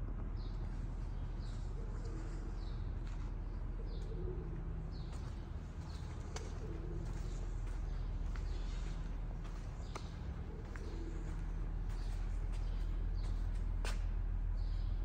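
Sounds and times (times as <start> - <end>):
steady low hum: 0.0 - 15.0
birds chirping: 0.3 - 15.0
pigeon cooing: 1.4 - 13.3.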